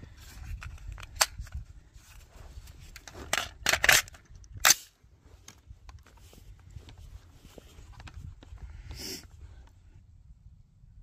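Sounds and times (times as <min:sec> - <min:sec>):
rifle clicks and clacks: 0:03.0 - 0:04.9.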